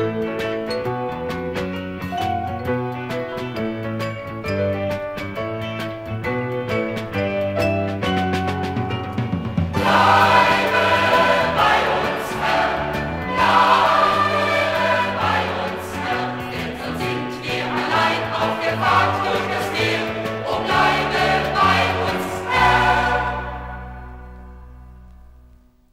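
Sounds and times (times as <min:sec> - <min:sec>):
choir singing with band: 0:09.7 - 0:24.4.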